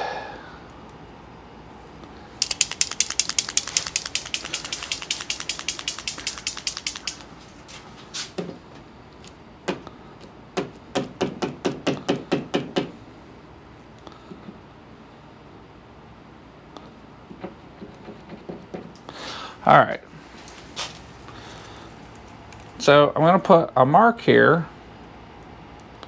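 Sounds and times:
paint marker ball rattling: 2.4s - 7.4s.

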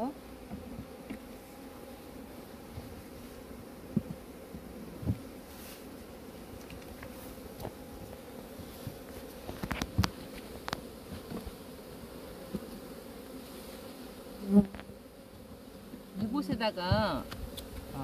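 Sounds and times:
honeybees buzzing: 0.0s - 18.0s
hive tool clicking on wooden frames: 8.9s - 11.6s, 16.9s - 17.9s.

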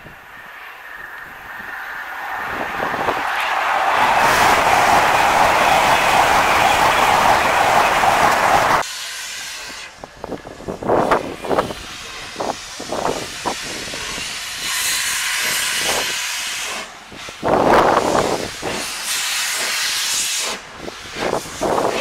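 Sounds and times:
passing train: 0.0s - 22.0s
steam locomotive hissing: 0.0s - 22.0s.

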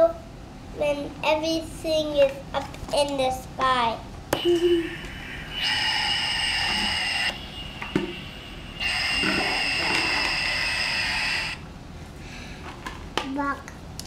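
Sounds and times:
electronic hum from small speaker: 2.5s - 12.2s.

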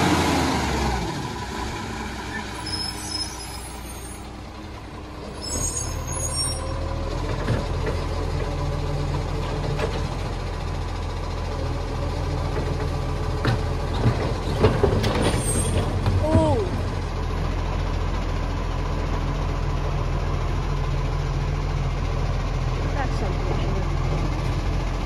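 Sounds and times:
garbage truck diesel engine: 0.0s - 25.0s.

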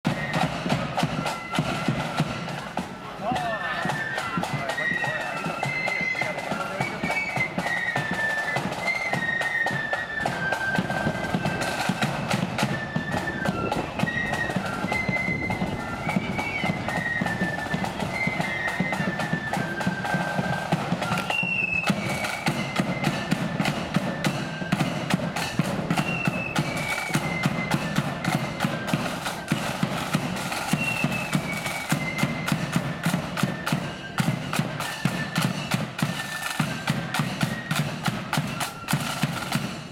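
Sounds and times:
flute melody: 0.0s - 39.9s
side drums: 0.0s - 39.9s
bass drum marching beat: 10.4s - 39.9s.

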